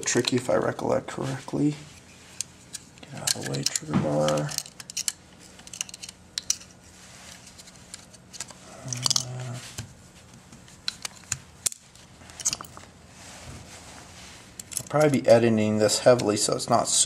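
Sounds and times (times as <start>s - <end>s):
metal parts clicking and tapping: 2.4s - 6.7s, 7.9s - 9.4s, 10.8s - 12.8s, 14.6s - 15.0s.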